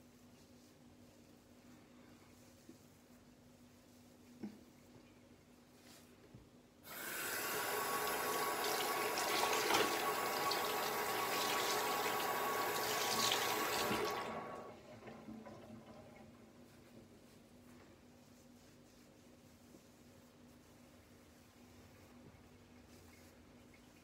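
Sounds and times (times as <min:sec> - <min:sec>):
tap running into sink: 0:08.0 - 0:14.3.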